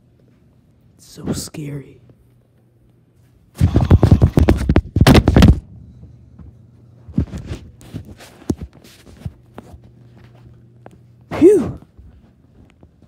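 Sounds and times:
quick thumps and rubbing: 3.6s - 5.5s
soft footsteps: 4.4s - 13.0s.

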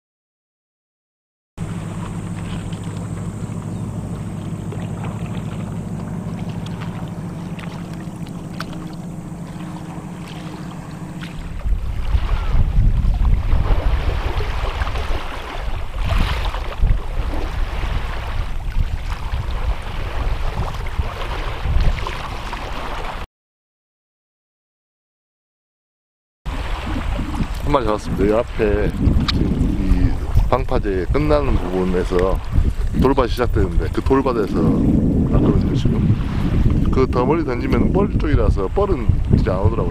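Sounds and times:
engine drone: 1.6s - 18.4s
wind buffeting microphone: 1.6s - 23.2s, 26.5s - 39.9s.

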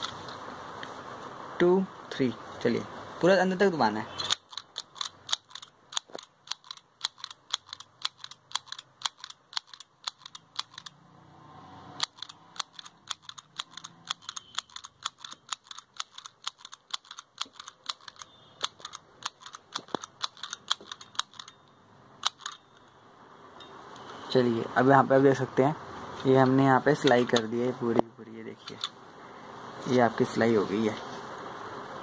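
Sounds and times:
mini sewing machine clicking: 4.2s - 11.0s, 12.0s - 21.6s, 22.2s - 22.6s.

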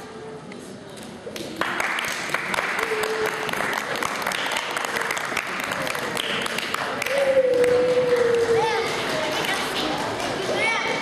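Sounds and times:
audience applauding: 1.6s - 10.3s.

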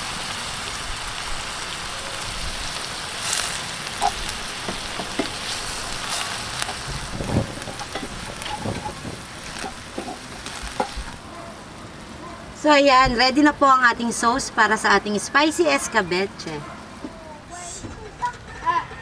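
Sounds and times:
sauce sizzling in a pan: 0.0s - 11.2s
spoon stirring and knocking pan: 4.0s - 5.5s, 6.6s - 11.1s.

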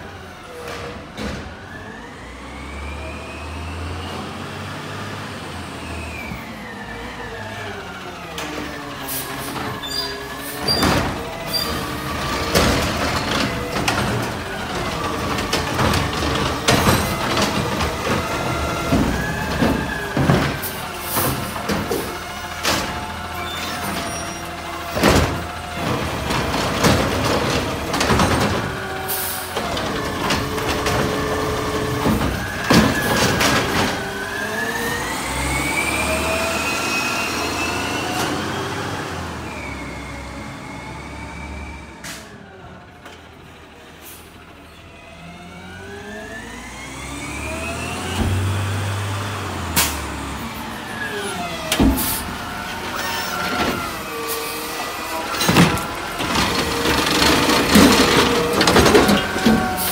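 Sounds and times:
garbage truck engine and hydraulics whining: 0.0s - 59.9s.

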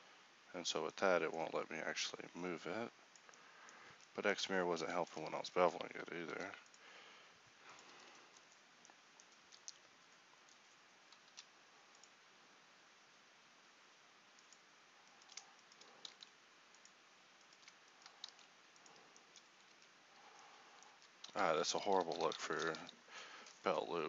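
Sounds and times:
computer keyboard and mouse clicks: 7.8s - 9.8s, 10.5s - 12.2s, 14.4s - 19.9s, 20.8s - 23.6s.

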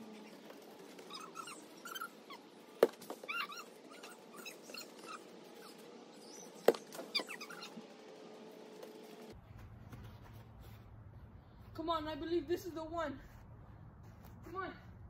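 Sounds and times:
high-pitched animal cries: 1.1s - 2.5s, 3.2s - 7.8s
soccer ball kick thumps: 2.8s - 3.3s, 6.6s - 7.0s.

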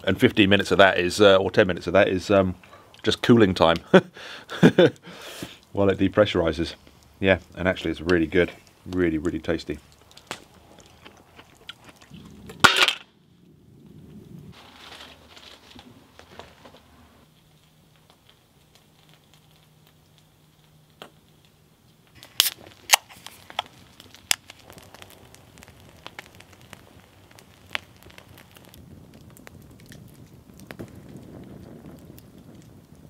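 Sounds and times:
campfire crackling: 0.0s - 33.0s
sharp fire pops: 6.7s - 11.0s, 11.6s - 33.0s.

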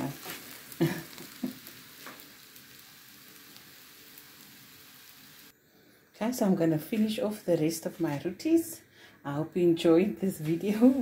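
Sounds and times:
flatbread sizzling in a pan: 0.0s - 5.5s.

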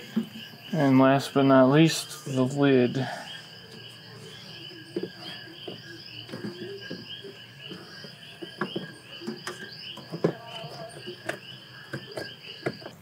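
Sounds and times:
insects chirping: 0.0s - 13.0s
plastic clicks and knocks: 4.9s - 13.0s.

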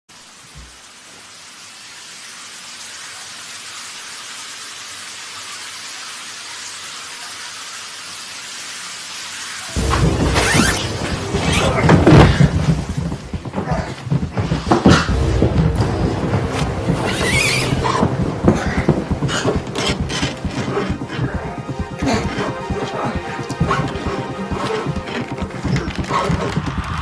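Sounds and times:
rain-like hiss: 0.1s - 27.0s
dramatic music: 9.7s - 27.0s.

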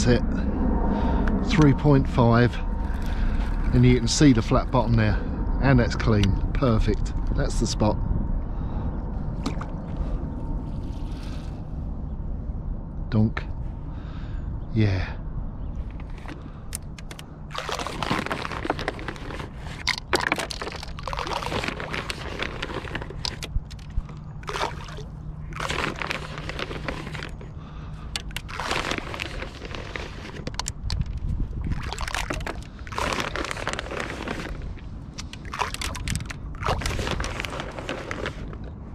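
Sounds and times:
bait splashing onto water: 19.9s - 27.2s, 31.6s - 33.5s, 35.4s - 37.2s.

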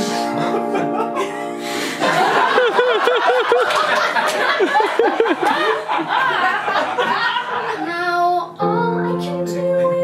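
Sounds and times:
audience laughing: 0.0s - 7.8s.

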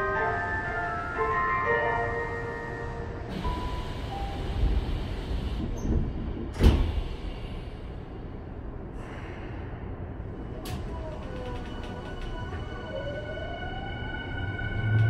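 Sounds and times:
train humming: 0.0s - 9.2s, 9.8s - 15.0s
train doors shutting with thud: 3.3s - 7.7s.

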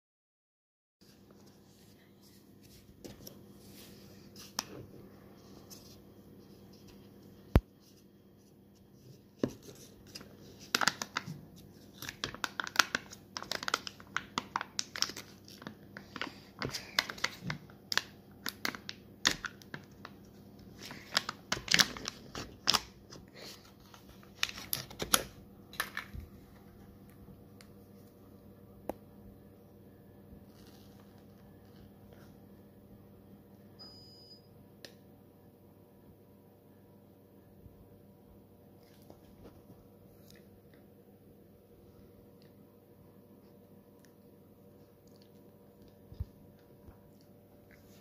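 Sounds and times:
foil seal crinkling: 10.1s - 23.0s.

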